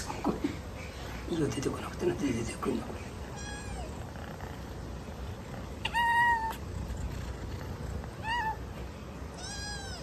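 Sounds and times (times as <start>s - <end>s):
kitten meowing: 3.3s - 4.0s, 5.8s - 6.6s, 8.2s - 8.6s, 9.4s - 10.0s.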